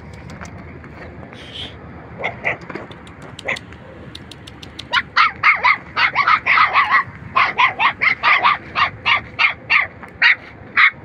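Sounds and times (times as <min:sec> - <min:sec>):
puppy yelping: 0:03.4 - 0:11.0.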